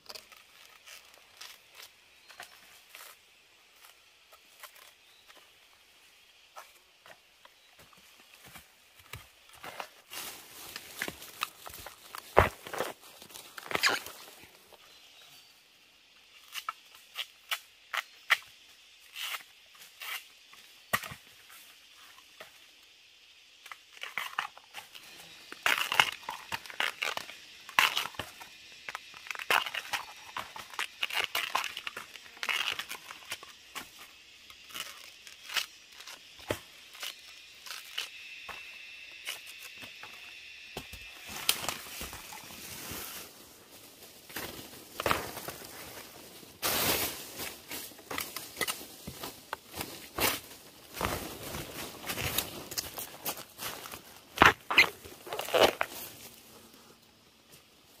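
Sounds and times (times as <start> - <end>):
dry plant material crackling: 0.0 - 5.4, 9.4 - 14.9, 23.8 - 38.3, 40.9 - 56.5.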